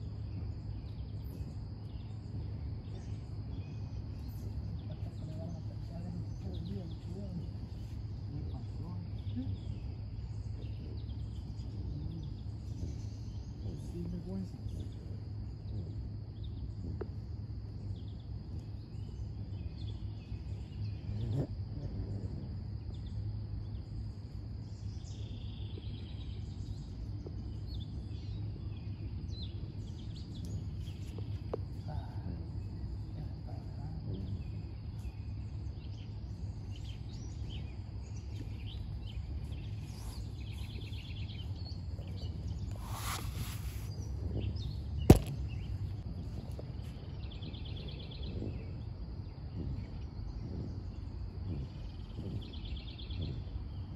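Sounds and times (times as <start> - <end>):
faint high hum: 0.0 - 53.9
steady low rumble: 0.0 - 53.9
bird chirps: 34.1 - 53.9
brief hiss: 42.8 - 43.9.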